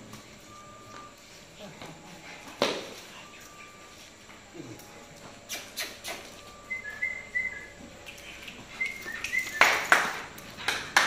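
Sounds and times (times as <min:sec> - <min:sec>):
person whistling commands: 0:05.5 - 0:07.7.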